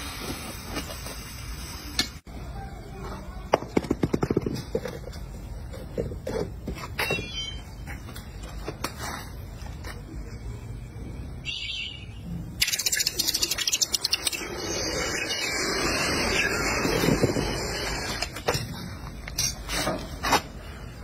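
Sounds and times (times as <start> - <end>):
molten metal crackling in water: 12.6 - 15.8.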